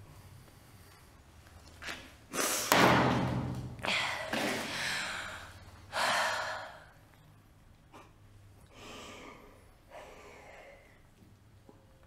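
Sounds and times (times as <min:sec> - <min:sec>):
woman breathing heavily: 0:03.8 - 0:07.2, 0:08.7 - 0:11.2.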